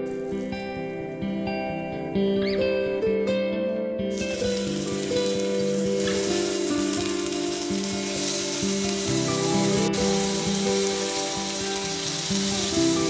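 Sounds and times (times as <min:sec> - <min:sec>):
background music: 0:00.0 - 0:13.0
tomato slices sizzling in oil: 0:04.1 - 0:13.0.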